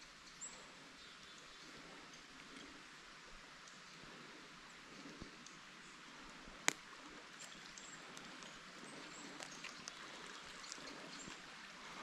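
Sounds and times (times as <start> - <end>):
forest stream rushing: 0.0 - 12.0
faint ticks: 5.0 - 5.6, 6.3 - 11.5.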